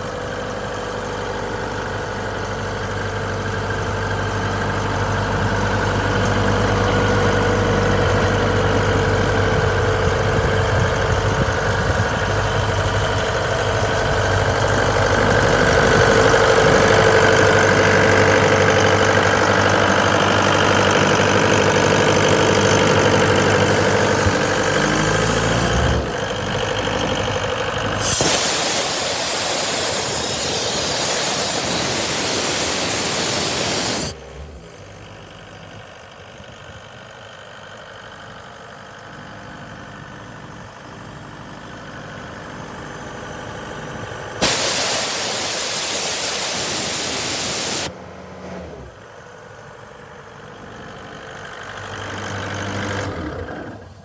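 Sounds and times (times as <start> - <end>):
diesel engine running: 0.0 - 54.0
compressed air hissing: 27.9 - 34.1, 44.4 - 47.9.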